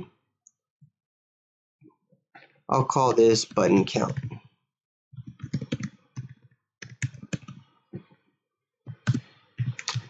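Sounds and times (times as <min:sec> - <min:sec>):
typing on computer keyboard: 0:05.2 - 0:07.6, 0:08.9 - 0:10.0.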